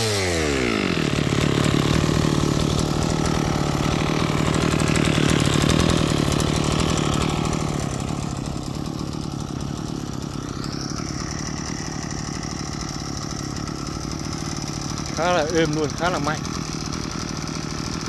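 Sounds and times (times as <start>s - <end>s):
brush cutter engine running: 0.0s - 18.0s.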